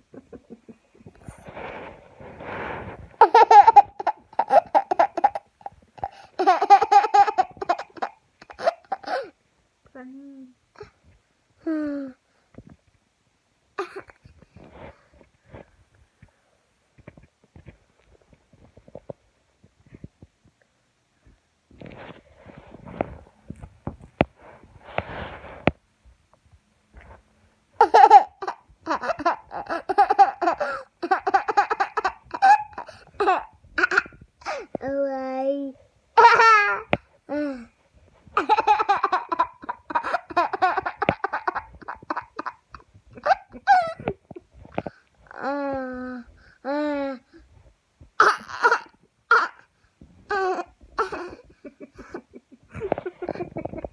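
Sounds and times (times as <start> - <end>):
toddler laughing: 3.2 - 9.3, 27.8 - 34.6, 36.2 - 37.4, 38.4 - 44.2, 48.2 - 49.6, 50.3 - 53.9
young child giggling: 38.4 - 44.2, 50.3 - 53.9.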